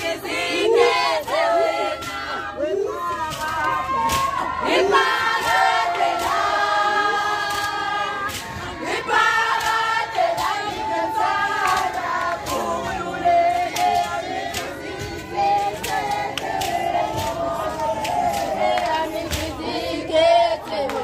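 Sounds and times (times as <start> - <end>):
women and girls singing: 0.0 - 21.0
sharp claps: 7.2 - 19.7.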